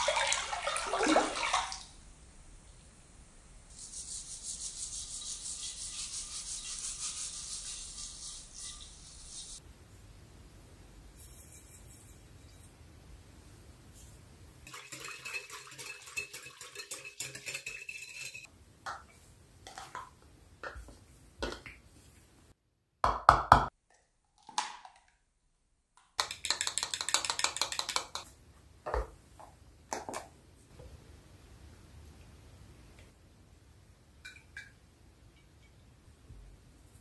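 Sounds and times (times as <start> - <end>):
whisk scraping in glass bowl: 3.8 - 9.6, 11.2 - 12.8, 14.6 - 18.5
spoon beating egg: 14.6 - 18.5, 26.2 - 28.3.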